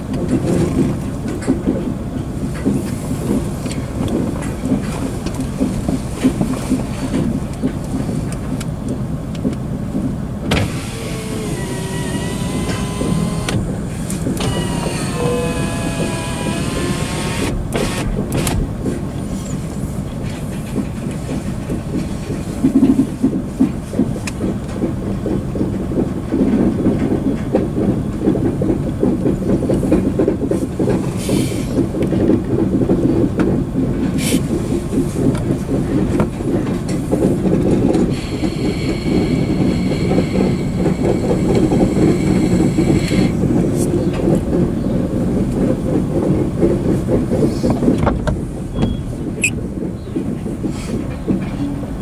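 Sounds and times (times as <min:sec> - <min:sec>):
train wheels rumbling on rails: 0:00.0 - 0:52.0
high-pitched squeal: 0:14.4 - 0:17.5.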